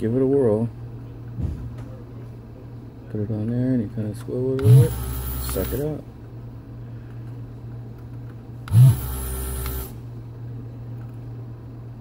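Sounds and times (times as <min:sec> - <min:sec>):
solder station hum: 0:00.0 - 0:12.0
desoldering pump sucking air: 0:04.6 - 0:05.8, 0:08.7 - 0:10.0.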